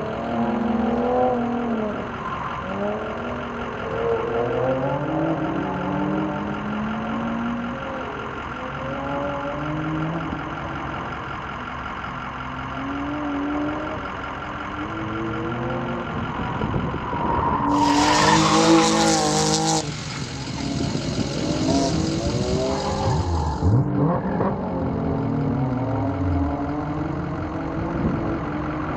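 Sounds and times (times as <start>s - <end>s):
car engine revving: 12.6s - 28.9s
tyres skidding: 13.0s - 24.7s.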